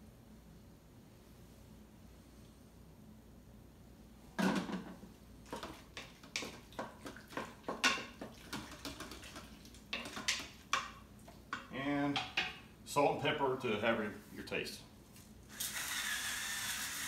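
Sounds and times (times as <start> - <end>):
utensil scraping metal pot: 5.5 - 10.9.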